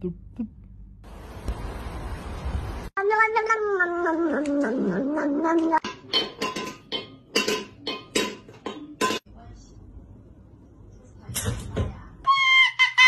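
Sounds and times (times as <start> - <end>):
cat yowling: 3.0 - 5.8.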